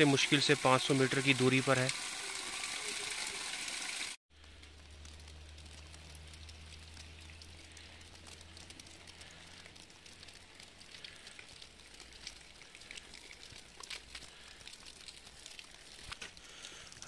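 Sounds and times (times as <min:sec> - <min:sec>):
small ticks: 0:04.4 - 0:17.0
wet snow pattering: 0:04.4 - 0:17.0.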